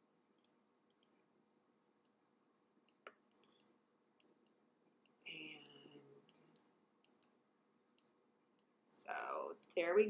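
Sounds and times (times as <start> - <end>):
faint sharp clicks: 0.4 - 1.2, 2.9 - 7.4, 9.6 - 9.9.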